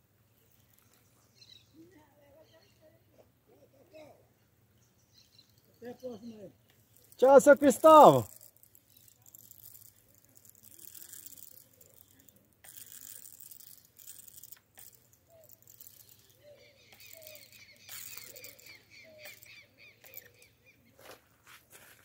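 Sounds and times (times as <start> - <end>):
birds chirping: 0.3 - 9.2, 15.2 - 21.3.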